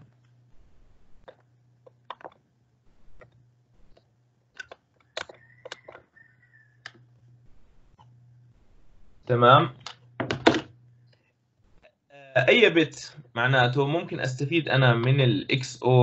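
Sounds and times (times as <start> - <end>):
low steady hum: 0.0 - 16.0
keyboard and mouse clicks: 1.2 - 2.4, 3.2 - 6.0.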